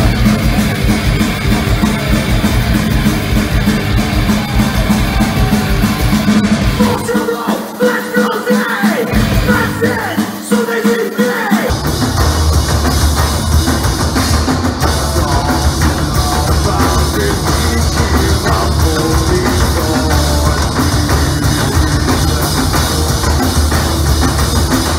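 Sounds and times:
live heavy rock music: 0:00.0 - 0:24.9
pounding drums: 0:00.0 - 0:24.9.

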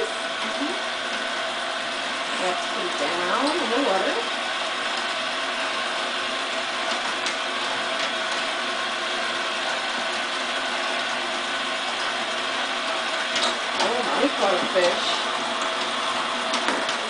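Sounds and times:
toy motor and gears whirring: 0:00.0 - 0:17.0.

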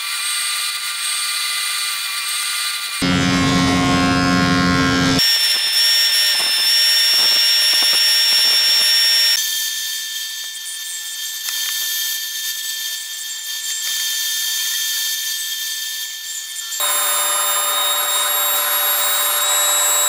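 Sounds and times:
jointer cutting a board: 0:00.7 - 0:09.4, 0:16.7 - 0:20.0
bandsaw running: 0:03.0 - 0:09.4, 0:16.8 - 0:20.0.

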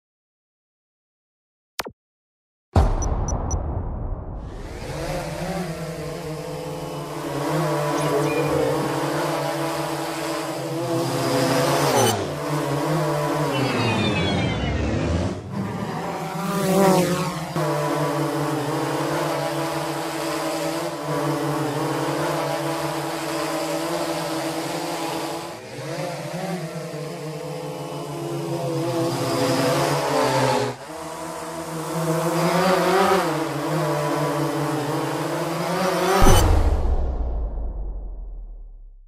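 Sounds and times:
low boom: 0:02.8 - 0:05.6, 0:36.2 - 0:39.0
drone propellers buzzing: 0:04.4 - 0:38.9.

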